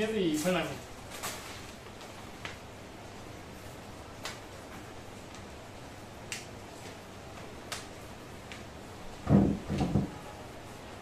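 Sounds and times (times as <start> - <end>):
knocks and handling noise: 9.2 - 10.3.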